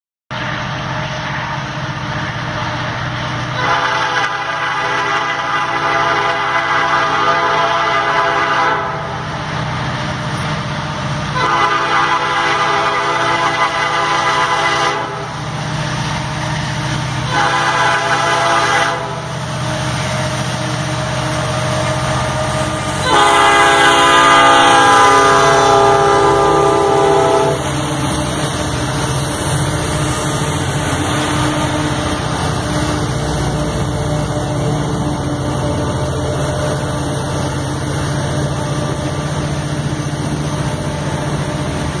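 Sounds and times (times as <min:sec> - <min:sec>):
diesel locomotive engines working: 0:00.3 - 0:42.0
freight cars rolling past: 0:00.3 - 0:42.0
locomotive horn blasts: 0:03.6 - 0:09.2, 0:11.3 - 0:15.3, 0:17.3 - 0:19.3, 0:23.0 - 0:27.7.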